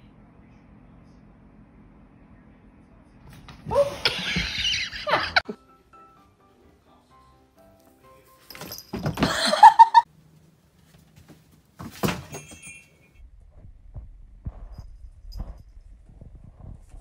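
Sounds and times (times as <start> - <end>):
person laughing: 4.0 - 5.7, 9.2 - 10.1
faint low rumble: 13.2 - 17.0.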